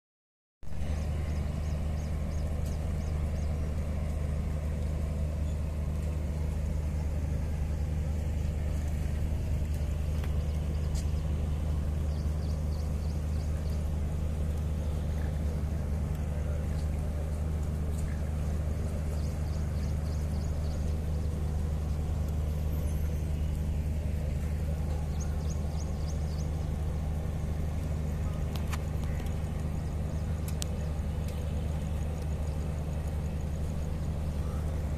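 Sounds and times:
diesel train engine idling: 0:00.7 - 0:34.9.

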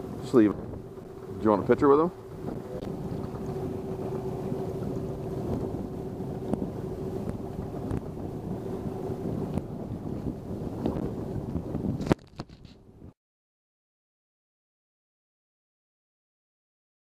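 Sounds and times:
steady hum: 0:00.0 - 0:11.7
water slapping boat hull: 0:00.0 - 0:13.0.

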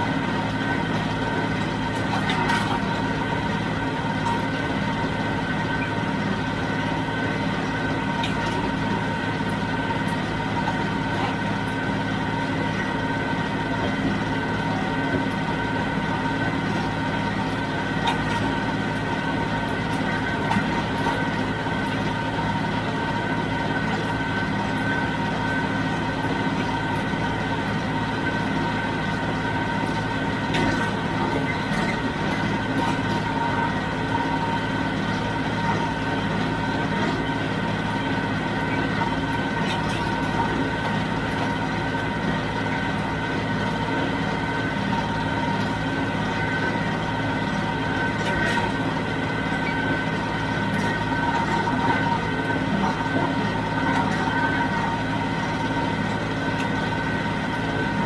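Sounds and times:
steady high whine: 0:00.0 - 0:58.0
tractor diesel engine drone: 0:00.0 - 0:58.0.

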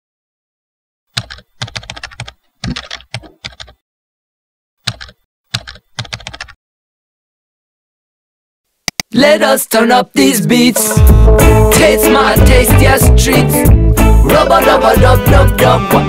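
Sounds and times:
computer keyboard typing: 0:01.1 - 0:03.8, 0:04.8 - 0:06.6.

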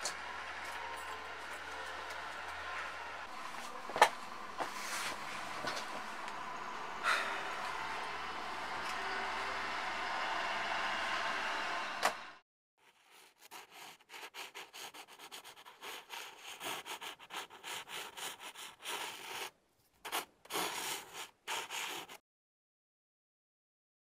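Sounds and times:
scratchy drawing strokes on paper: 0:12.8 - 0:22.2.

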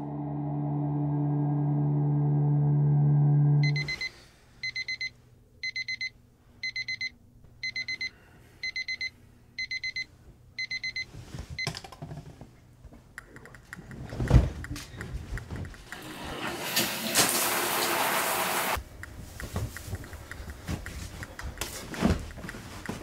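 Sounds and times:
alarm clock beeping: 0:03.6 - 0:11.1
bedding rustling: 0:14.0 - 0:15.8, 0:19.2 - 0:23.0.

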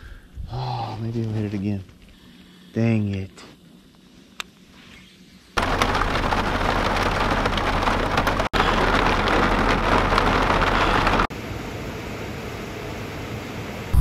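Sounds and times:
heavy rain: 0:05.6 - 0:11.3
low hum: 0:13.7 - 0:14.0.

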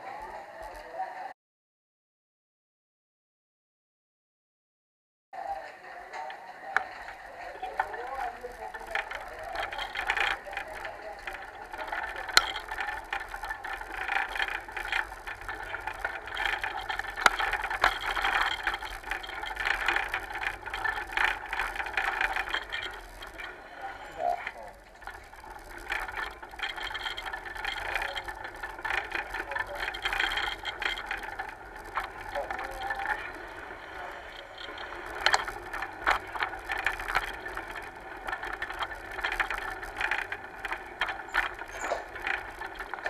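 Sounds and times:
rattling road noise: 0:06.1 - 0:43.0
sharp clicks and knocks: 0:06.8 - 0:43.0.

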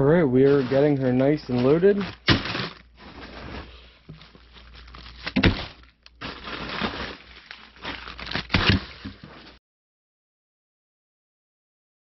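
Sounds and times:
plastic bags crinkling: 0:00.4 - 0:09.6.

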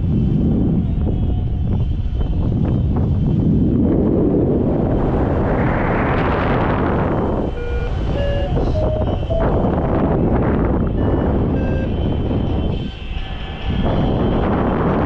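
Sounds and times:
wind rushing over microphone: 0:00.0 - 0:15.0
variometer short beeps: 0:07.6 - 0:09.8, 0:10.9 - 0:12.0.

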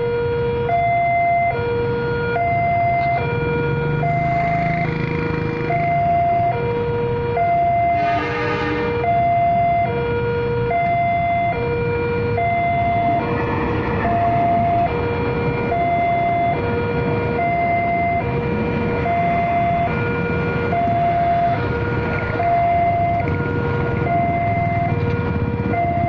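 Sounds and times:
low rumble of passing train: 0:12.2 - 0:26.0.

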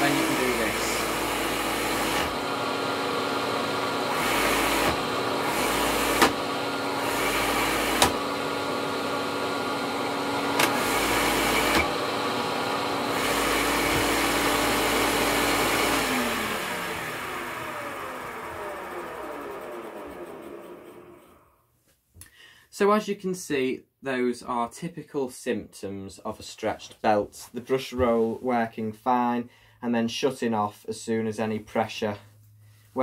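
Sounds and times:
vacuum cleaner running: 0:00.0 - 0:21.6
vacuum motor winding down: 0:00.0 - 0:21.6.

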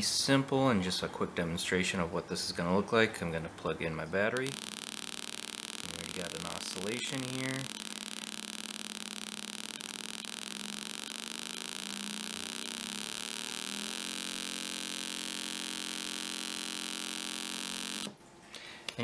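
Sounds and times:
buzzing square-wave tone: 0:04.3 - 0:18.2.

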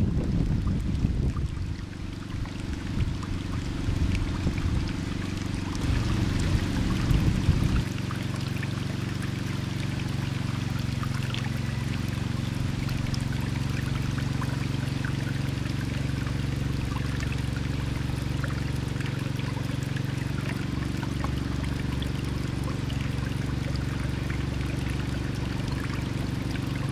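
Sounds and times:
low rumble: 0:00.0 - 0:08.8
trickling water: 0:00.0 - 0:26.9.

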